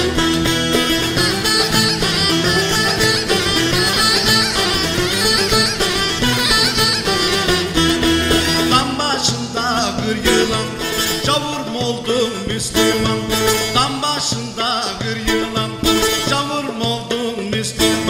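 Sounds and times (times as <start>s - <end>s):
wind pipe melody: 0.0s - 9.2s
plucked lutes playing folk music: 0.0s - 18.0s.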